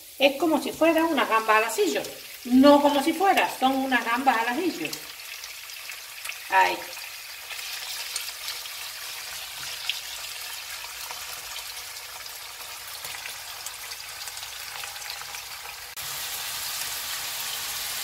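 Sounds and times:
food sizzling in a frying pan: 0.0s - 18.0s.

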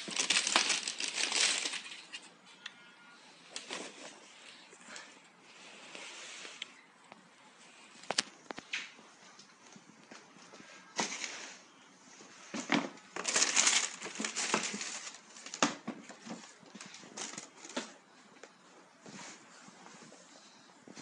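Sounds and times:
tissue paper crinkling: 0.0s - 2.3s, 12.6s - 18.0s.

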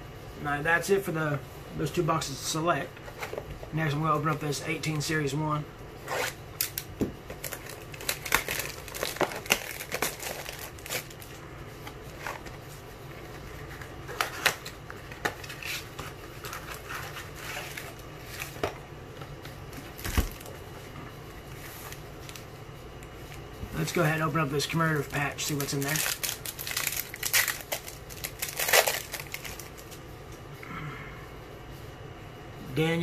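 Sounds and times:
shrink wrap crinkling: 6.1s - 18.6s, 23.3s - 30.0s.

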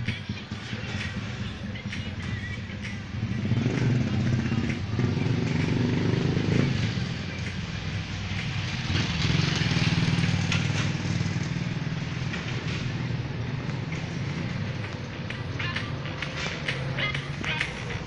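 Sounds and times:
street traffic: 0.0s - 18.0s
vehicle engine running: 0.0s - 18.0s.

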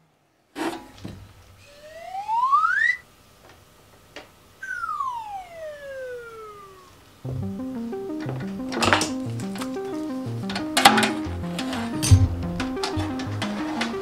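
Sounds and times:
whistle-like gliding tone: 1.7s - 3.0s, 4.6s - 6.9s.

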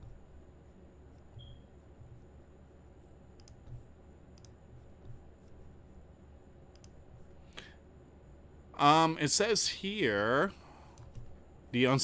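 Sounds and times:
steady low hum: 0.0s - 12.0s
computer mouse clicks: 3.3s - 5.6s, 6.7s - 7.0s, 10.9s - 11.4s.

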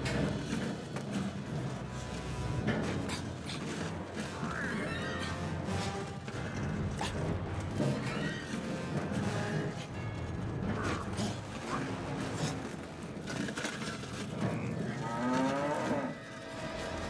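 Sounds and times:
clicks and rustles: 5.3s - 17.0s
cow mooing: 14.6s - 16.6s.

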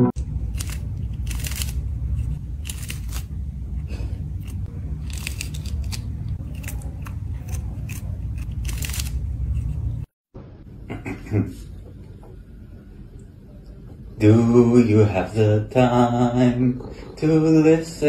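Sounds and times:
kitten crunching and chewing fish: 0.4s - 1.8s, 2.4s - 9.8s.

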